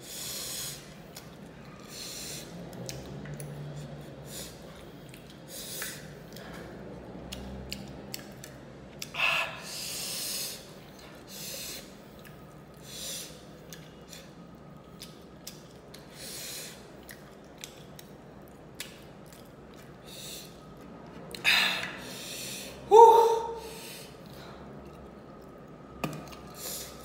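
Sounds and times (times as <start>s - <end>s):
sharp breaths and sniffs: 0.0s - 6.8s, 9.1s - 14.5s, 16.0s - 17.1s, 19.9s - 20.7s, 21.4s - 22.9s, 26.5s - 27.0s
wet chewing clicks: 0.8s - 9.2s, 10.8s - 22.1s.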